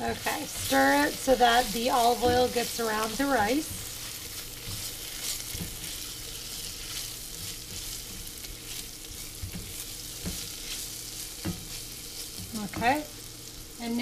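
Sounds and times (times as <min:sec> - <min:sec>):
rice and onion sizzling in oil: 0:00.0 - 0:14.0
spatula scraping a pot: 0:00.2 - 0:13.0.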